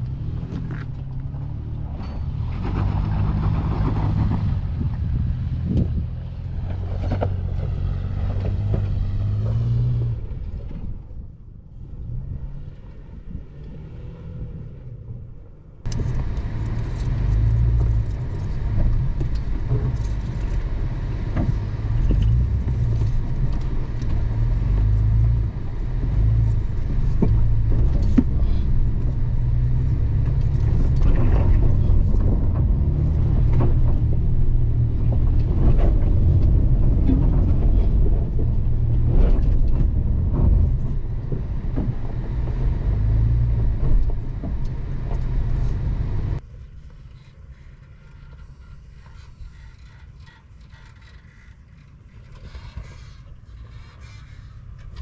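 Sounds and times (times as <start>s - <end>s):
engine running under load: 15.8s - 46.5s.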